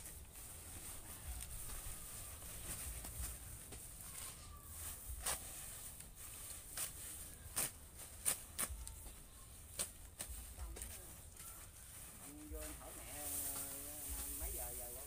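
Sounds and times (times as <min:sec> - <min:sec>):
rustles of soil and sack: 0:00.0 - 0:15.0
steady high hiss: 0:09.6 - 0:15.0.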